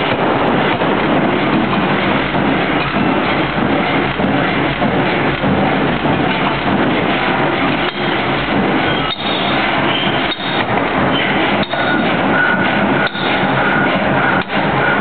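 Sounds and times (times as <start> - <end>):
pneumatic forging hammer striking: 8.8 - 15.0.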